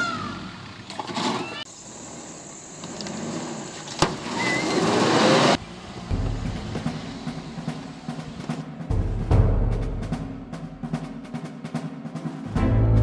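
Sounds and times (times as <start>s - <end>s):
vehicle engine revving: 4.4s - 8.7s.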